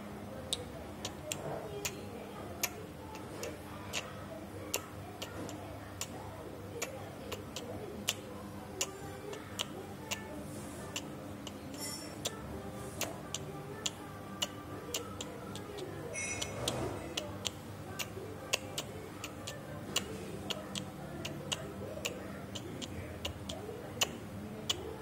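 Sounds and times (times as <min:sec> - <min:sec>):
faint background murmur: 0:00.0 - 0:25.0
high squeaky sound: 0:16.2 - 0:16.8.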